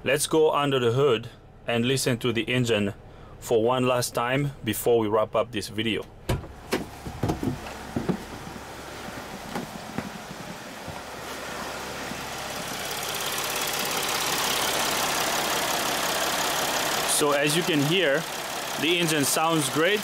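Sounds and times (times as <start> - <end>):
diesel engine idling: 0.6 - 3.8, 5.8 - 20.0
knocks and clicks: 6.3 - 8.6.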